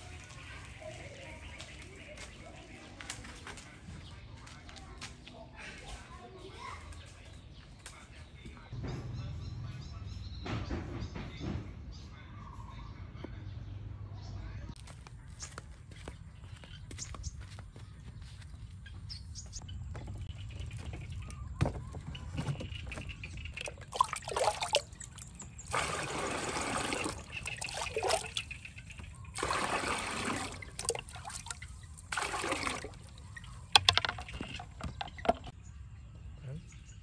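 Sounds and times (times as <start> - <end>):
water pouring: 23.5 - 35.5.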